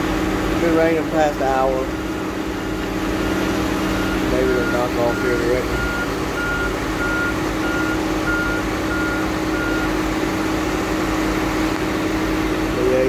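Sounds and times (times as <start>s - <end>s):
heavy machine engine running: 0.0s - 13.0s
backup alarm beeping: 4.0s - 10.0s.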